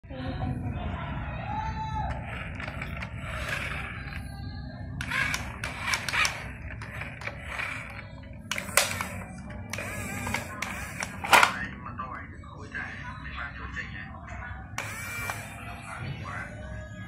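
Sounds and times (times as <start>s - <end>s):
toy motor and gearbox whirring: 2.1s - 4.4s, 5.0s - 11.6s, 14.8s - 15.8s.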